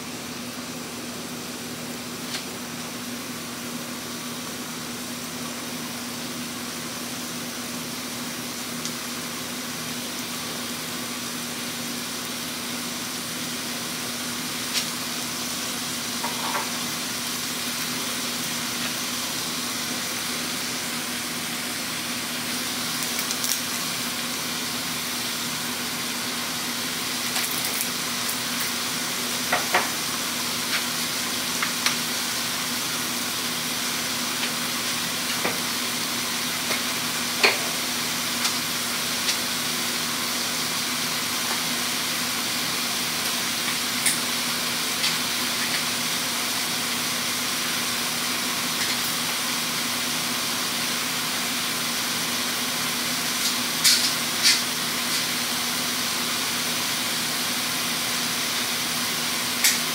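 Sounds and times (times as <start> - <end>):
food sizzling in a frying pan: 0.1 - 59.9
pops and crackles: 23.0 - 23.6.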